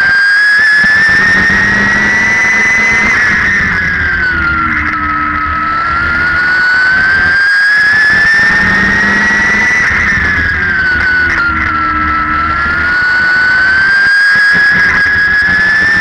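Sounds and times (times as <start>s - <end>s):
race car engine revving: 0.0s - 16.0s.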